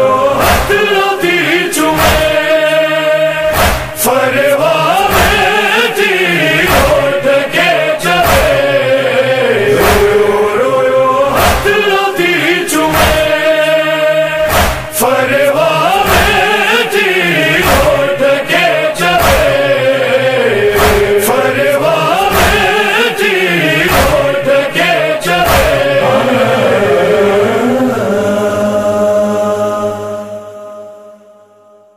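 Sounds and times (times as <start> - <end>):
sharp beats: 3.5 - 4.1, 8.1 - 8.8, 14.5 - 15.1, 23.8 - 24.5, 25.4 - 27.4.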